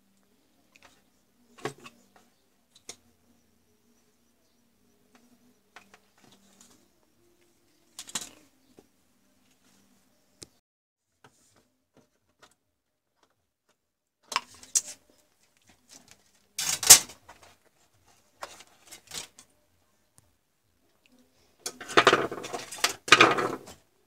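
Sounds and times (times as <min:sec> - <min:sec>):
objects knocking on workbench: 0:21.8 - 0:23.7.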